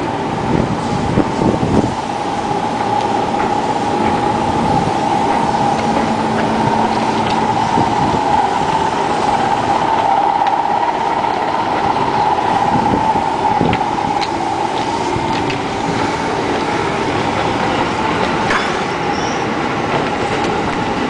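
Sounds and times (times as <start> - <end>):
constant whine: 0.0 - 21.0
train hum: 0.0 - 21.0.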